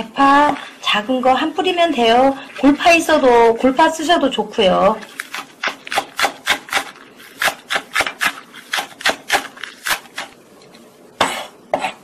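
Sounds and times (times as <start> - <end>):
knife chopping on wooden board: 5.3 - 10.3.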